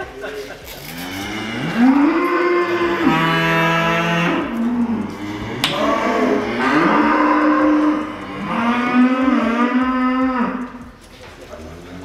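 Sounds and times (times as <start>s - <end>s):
cows mooing: 0.9s - 11.0s
sharp click: 4.9s - 6.0s.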